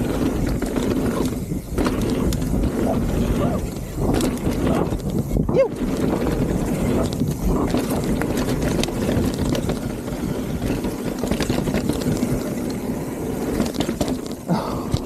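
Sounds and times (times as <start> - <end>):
bike rattles and knocks: 0.0 - 15.0
bike tyres rolling over gravel: 0.0 - 15.0.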